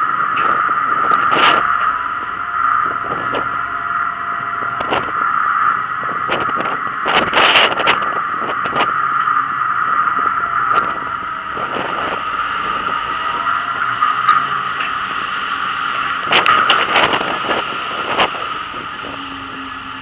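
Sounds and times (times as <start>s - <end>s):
wind and ship hum: 0.0s - 20.0s
wave breaking over deck: 9.8s - 20.0s.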